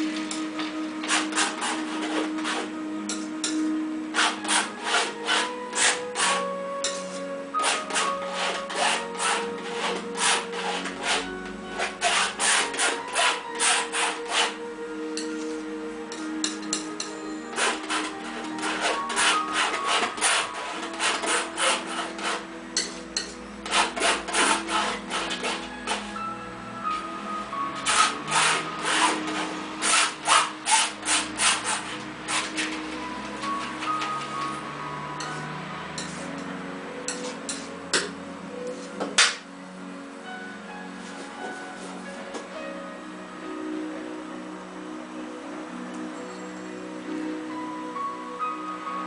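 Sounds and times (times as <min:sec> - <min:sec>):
paintbrush scrubbing canvas: 0:07.6 - 0:14.6, 0:17.6 - 0:22.4, 0:23.7 - 0:26.1.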